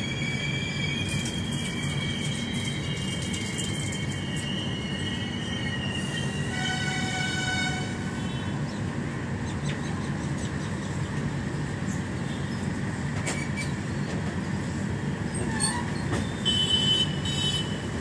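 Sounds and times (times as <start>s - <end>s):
high-pitched wheel squeal: 0.0s - 7.0s, 15.3s - 16.2s
train wheels rumbling on rails: 0.0s - 18.0s.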